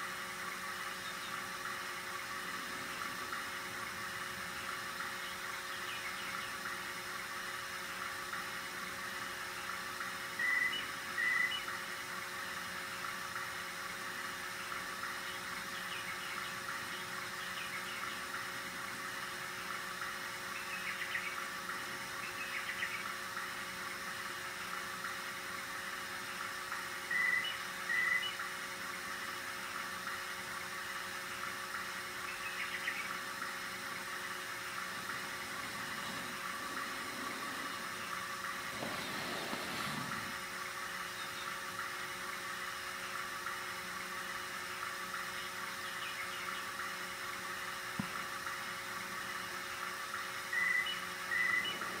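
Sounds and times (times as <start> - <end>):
tape transport whirring: 33.3 - 41.2.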